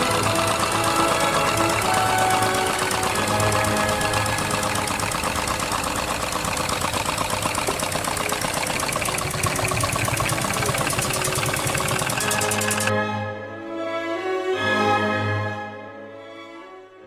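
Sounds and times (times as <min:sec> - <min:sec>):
model engine rattling: 0:00.0 - 0:12.9.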